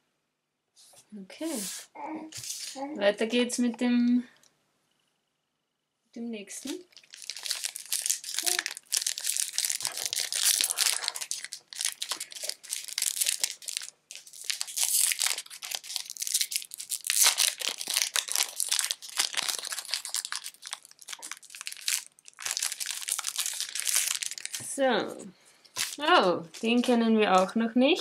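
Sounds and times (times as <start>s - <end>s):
foil wrapper crinkling and tearing: 6.6s - 24.7s, 25.7s - 26.1s.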